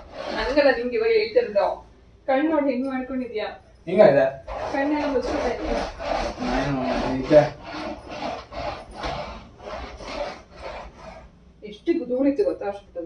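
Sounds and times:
brush rubbing on bedsheet: 0:00.0 - 0:01.0, 0:04.5 - 0:11.4.

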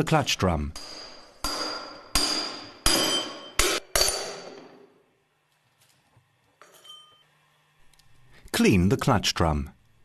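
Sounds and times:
hammer striking metal drift: 0:00.7 - 0:04.9.

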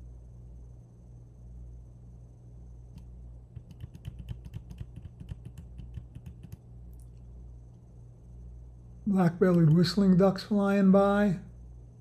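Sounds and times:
steady low hum: 0:00.0 - 0:12.0
computer keyboard keys clicking: 0:03.6 - 0:06.6.

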